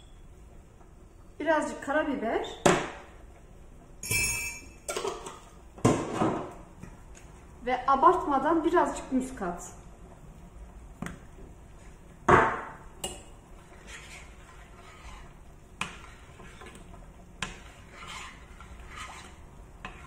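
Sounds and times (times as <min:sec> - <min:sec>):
whisk swishing in sauce: 0:13.6 - 0:20.0.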